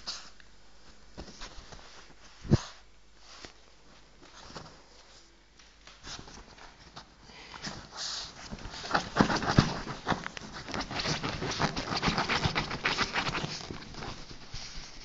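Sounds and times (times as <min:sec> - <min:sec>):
rustling blankets: 0:00.0 - 0:15.0
dog sniffing: 0:07.7 - 0:15.0.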